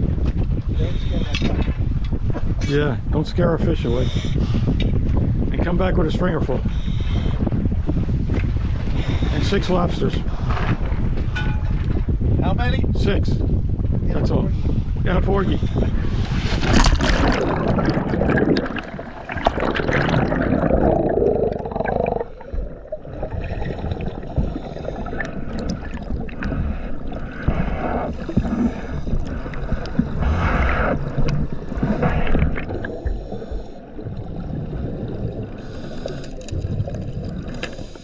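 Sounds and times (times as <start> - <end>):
gurgling scuba exhaust bubbles: 15.5 - 38.0
underwater rush of bubbles: 16.4 - 38.0.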